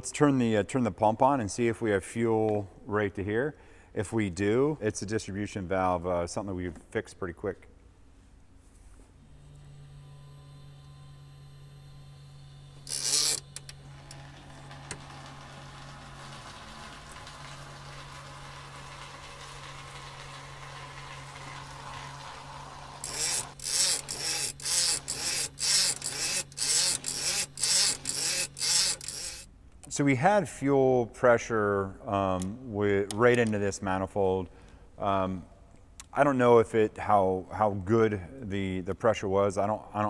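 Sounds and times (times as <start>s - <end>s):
electric fuel pump humming: 9.1s - 29.5s
fuel streaming into plastic bin: 14.2s - 23.0s.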